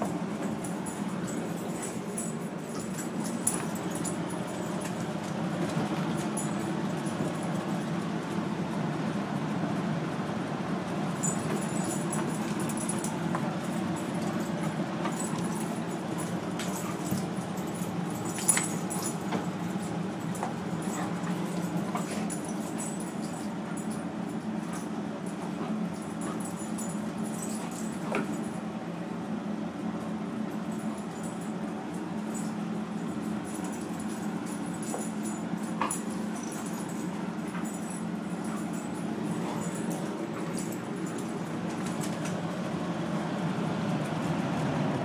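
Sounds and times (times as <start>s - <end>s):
puppies play growling: 0.0s - 8.0s, 11.0s - 28.6s, 32.3s - 42.7s
puppies scuffling: 0.0s - 8.0s, 11.1s - 28.6s, 32.3s - 42.6s
collar tags jingling: 0.0s - 8.1s, 11.0s - 28.7s, 30.5s - 42.6s.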